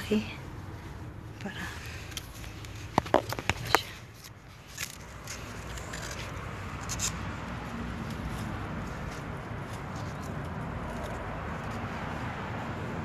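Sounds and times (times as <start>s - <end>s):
leaves rustling: 0.0s - 13.0s
outdoor background noise: 0.0s - 13.0s.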